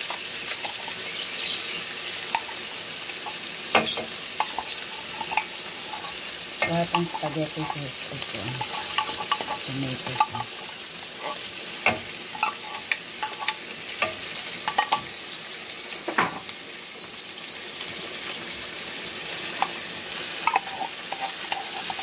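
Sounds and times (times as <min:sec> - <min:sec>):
metal spoon clicking and scraping: 0:00.0 - 0:01.4, 0:02.2 - 0:15.1, 0:19.4 - 0:22.0
food sizzling in a pan: 0:00.0 - 0:22.0.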